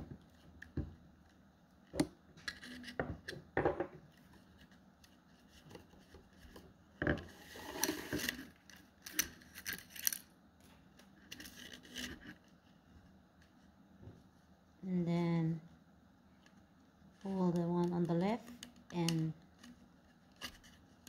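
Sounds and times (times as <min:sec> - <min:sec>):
rattan strips scraping and rustling: 0:07.3 - 0:10.2.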